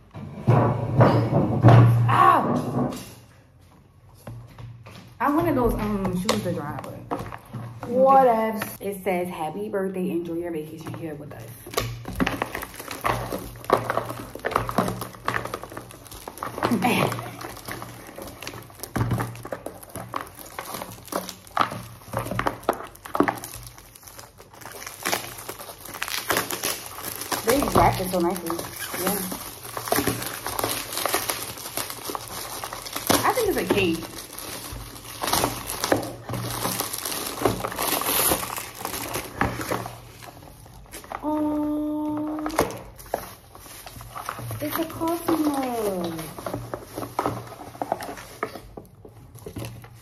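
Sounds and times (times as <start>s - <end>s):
wrapping paper crinkling: 10.3s - 50.0s.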